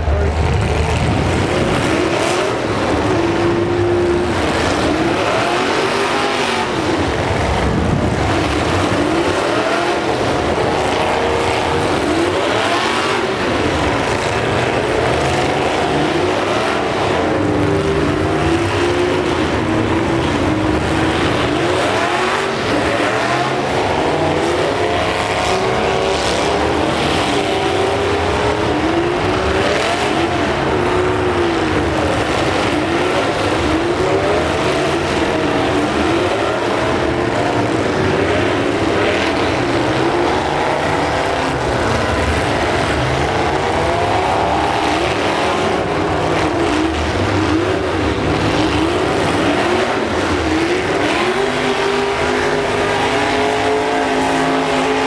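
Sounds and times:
truck engines revving: 0:00.0 - 0:55.0.

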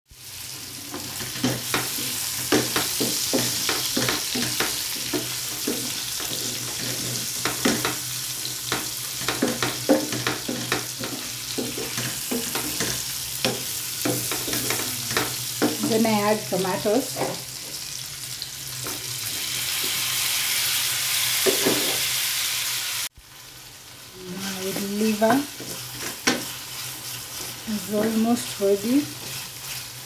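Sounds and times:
liver sizzling in hot oil: 0:00.1 - 0:30.0
wooden spatula scraping pan: 0:00.7 - 0:17.8, 0:24.4 - 0:30.0.

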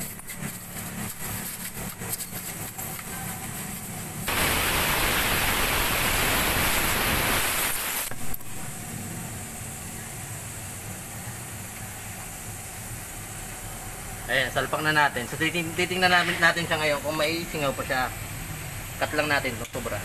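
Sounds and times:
low workshop hum: 0:00.0 - 0:20.0
air hissing: 0:04.3 - 0:08.7.

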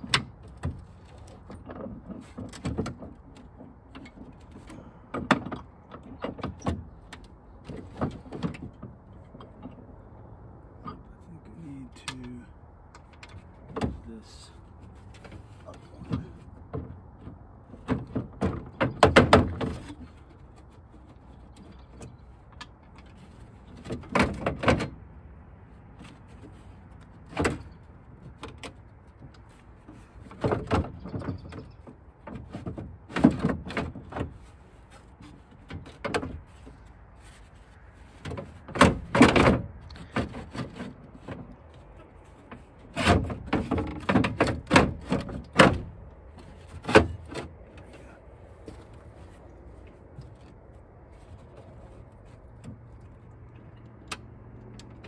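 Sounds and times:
metal clanks and scrapes: 0:26.0 - 0:54.0.

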